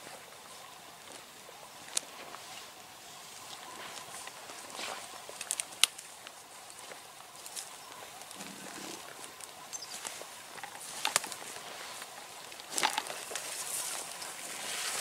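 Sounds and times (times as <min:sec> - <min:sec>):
deer croaking groan: 0:08.3 - 0:09.3.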